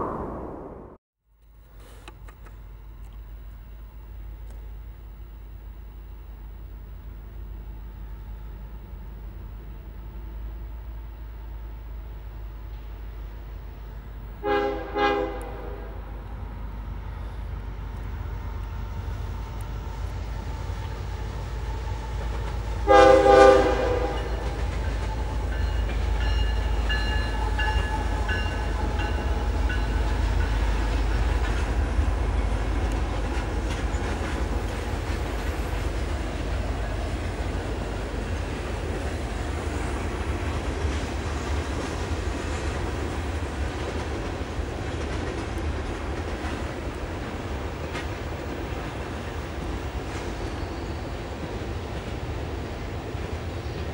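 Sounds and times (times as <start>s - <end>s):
freight train rumbling past: 0.0s - 1.0s, 6.0s - 53.9s
locomotive horn blasts: 14.4s - 16.2s, 22.8s - 24.6s.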